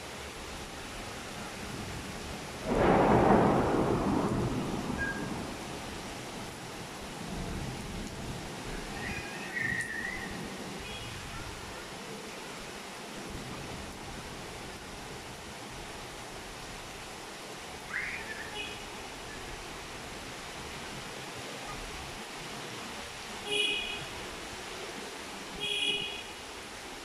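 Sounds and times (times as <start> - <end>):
steady rain falling: 0.0 - 27.0
thunderclap rumbling: 2.6 - 6.6.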